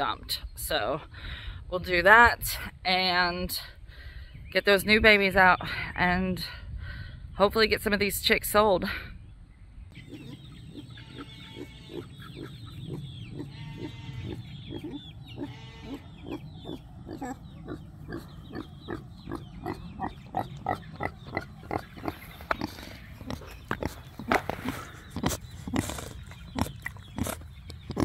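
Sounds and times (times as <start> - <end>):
pig drawn-out calls: 10.0 - 28.0
pig grunting: 10.0 - 28.0.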